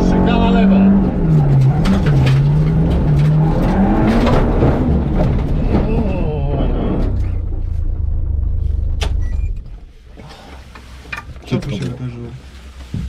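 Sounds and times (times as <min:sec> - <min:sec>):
car engine revving unevenly: 0:00.0 - 0:09.1.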